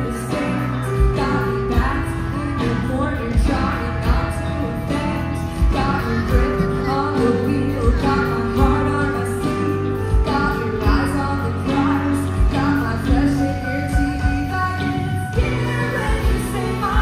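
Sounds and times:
live rock band playing: 0.0 - 17.0.

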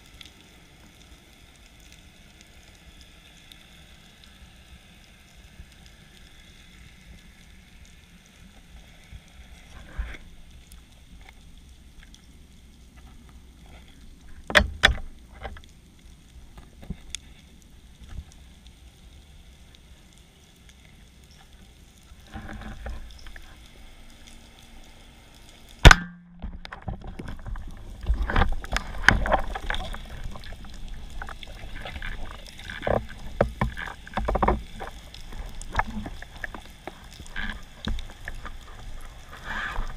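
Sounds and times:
underwater background: 0.0 - 39.9
diving gear knocking and rustling: 14.3 - 15.7, 22.2 - 23.6, 25.9 - 39.9
underwater clicks and knocks: 14.3 - 15.7, 22.2 - 23.6, 25.8 - 39.9.

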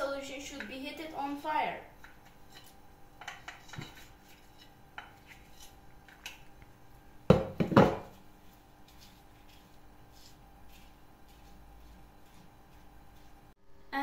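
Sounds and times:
spoon and bowl scraping a pan: 1.9 - 6.6, 7.8 - 13.6.

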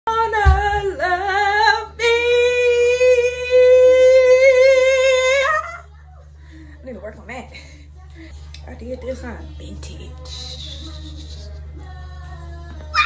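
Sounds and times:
woman singing unaccompanied: 0.0 - 5.8, 9.6 - 13.0.

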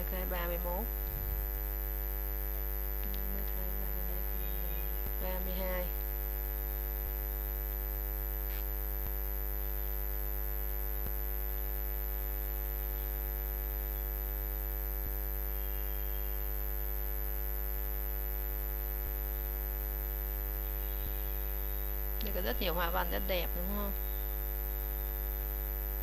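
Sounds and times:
electrical mains hum: 0.0 - 26.0
thin high whine: 13.9 - 16.6, 19.0 - 26.0.

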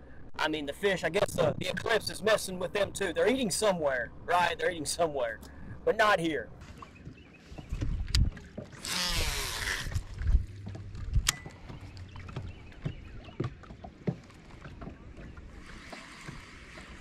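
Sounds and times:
fishing reel whirring: 8.8 - 10.0.

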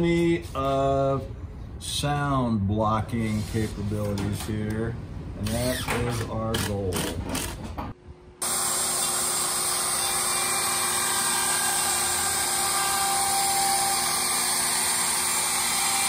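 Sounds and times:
wood router cutting plywood: 8.4 - 16.0.

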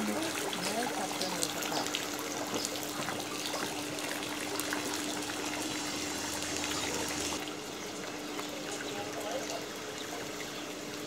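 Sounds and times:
water dripping and splashing: 0.0 - 11.0.

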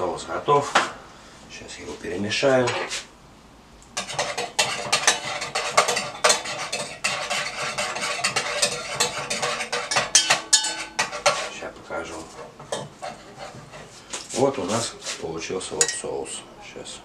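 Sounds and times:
spoon clinking and scraping dish: 4.0 - 11.6, 12.3 - 14.0, 15.8 - 16.1.

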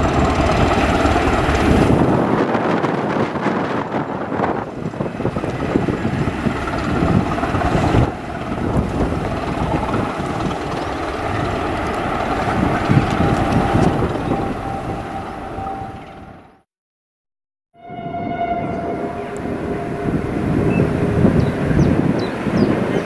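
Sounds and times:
train wheels rumbling on rails: 0.0 - 16.4
diesel train engine thumping drone: 0.0 - 16.6.

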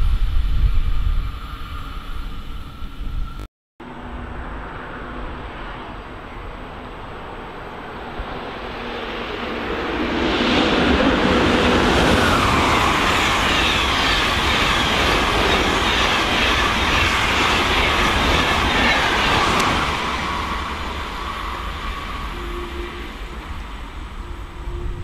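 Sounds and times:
train rumble: 0.0 - 25.0
locomotive whine: 0.4 - 25.0
train wheels rolling on rails: 7.0 - 25.0.

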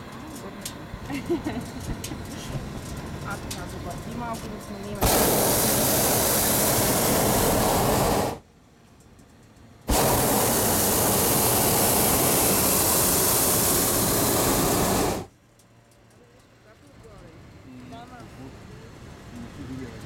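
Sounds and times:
propane burner blasts: 0.0 - 8.5, 9.8 - 15.3.

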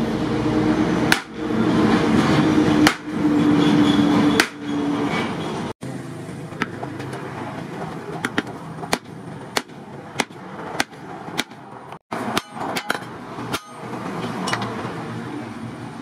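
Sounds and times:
steel bar clanking on steel blade: 12.2 - 14.7.

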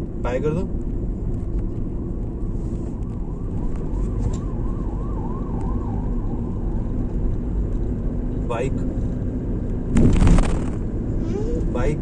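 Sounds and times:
faint siren wailing: 2.3 - 8.2.

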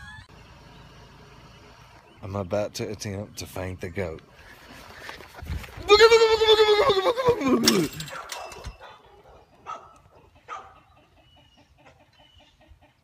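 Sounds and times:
chickens clucking: 6.4 - 13.0.

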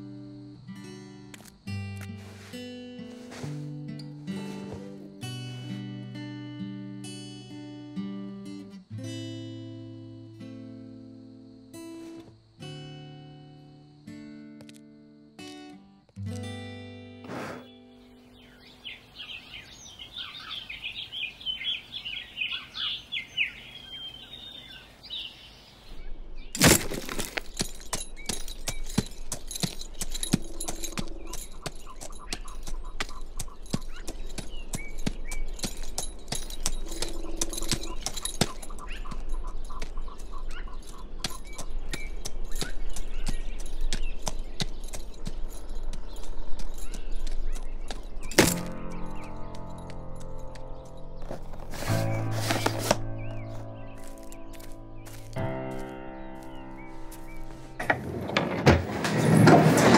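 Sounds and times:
birds chirping: 17.5 - 58.6.

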